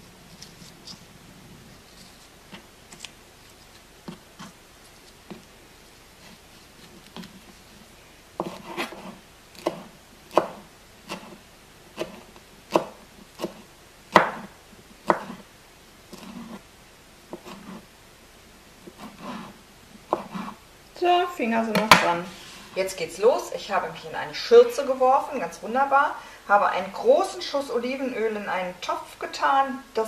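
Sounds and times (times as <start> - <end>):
knife chopping on wooden board: 8.4 - 11.4, 12.0 - 15.4, 17.3 - 17.8, 20.1 - 20.6.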